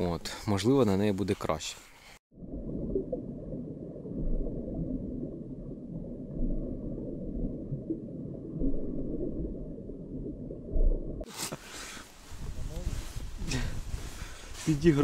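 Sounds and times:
muffled underwater rumble and gurgle: 0:02.3 - 0:11.3.

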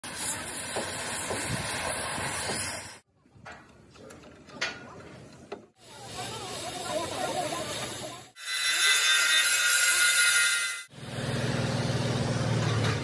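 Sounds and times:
cutting torch hissing: 0:00.0 - 0:03.0.

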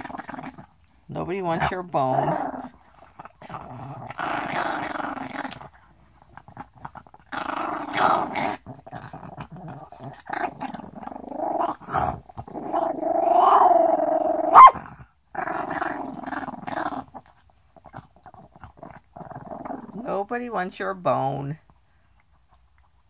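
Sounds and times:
dog growling: 0:00.0 - 0:20.3.

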